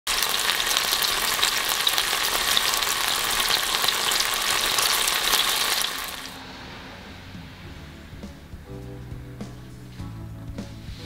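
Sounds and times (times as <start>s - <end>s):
chicken sizzling in a frying pan: 0.0s - 6.4s.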